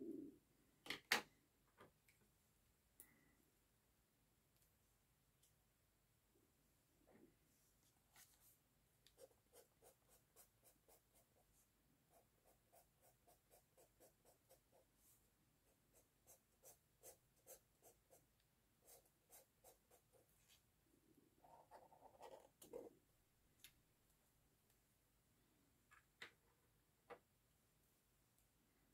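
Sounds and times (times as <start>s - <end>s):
marker scratching on paper: 21.4s - 22.9s.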